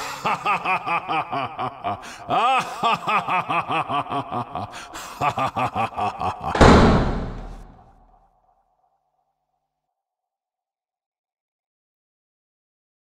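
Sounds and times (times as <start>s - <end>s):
person cackling with laughter: 0.0s - 6.6s.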